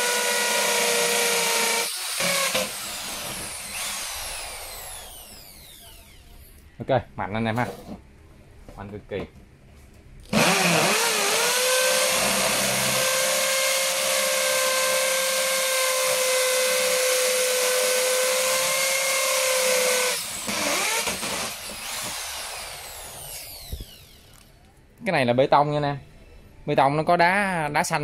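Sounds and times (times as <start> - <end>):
hammer drill boring into concrete: 0.0 - 6.2, 10.3 - 24.4.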